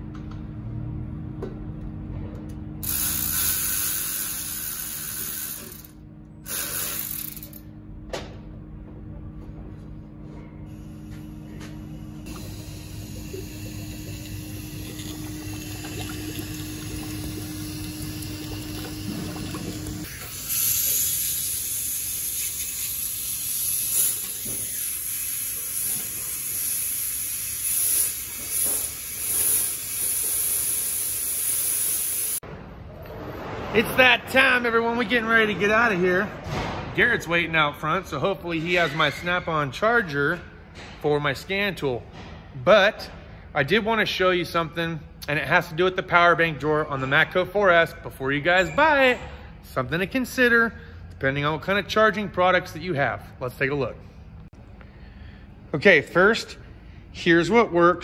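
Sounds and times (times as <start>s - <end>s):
aerosol can spraying: 20.1s - 32.4s.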